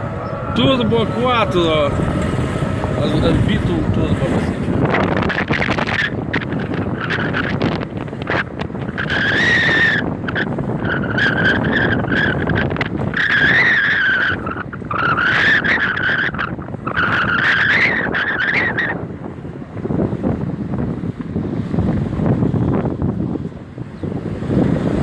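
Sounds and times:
high wavering car squeal: 0:00.0 - 0:19.1
road noise: 0:00.0 - 0:25.0.

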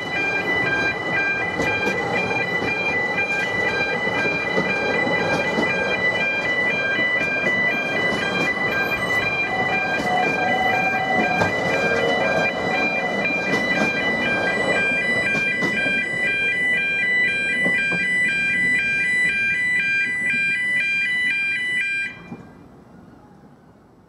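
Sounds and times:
level crossing alarm warbling: 0:00.0 - 0:22.4
railway coaches rumbling: 0:00.0 - 0:24.0.

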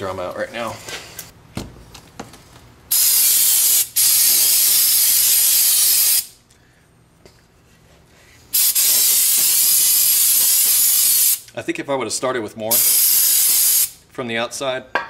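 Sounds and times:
aerosol spray hissing: 0:02.9 - 0:06.3, 0:08.6 - 0:11.4, 0:12.8 - 0:14.0.

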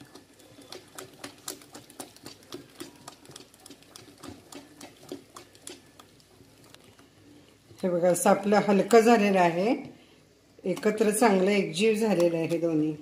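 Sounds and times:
hand slapping wet batter: 0:00.0 - 0:06.3.

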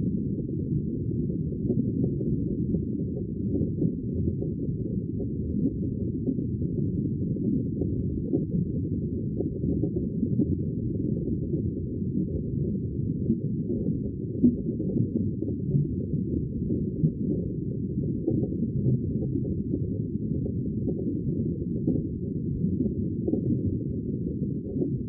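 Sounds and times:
muffled underwater water wash: 0:00.0 - 0:25.0.

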